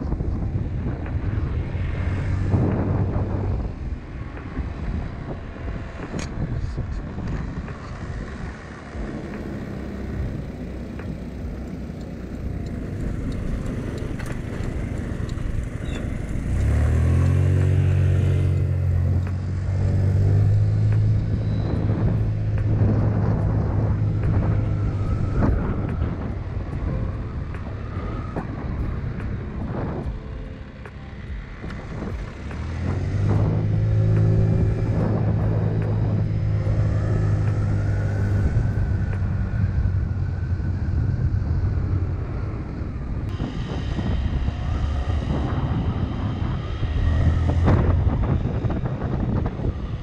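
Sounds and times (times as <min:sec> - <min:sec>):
wind rushing over microphone: 0:00.0 - 0:50.0
scooter engine running: 0:02.6 - 0:19.4.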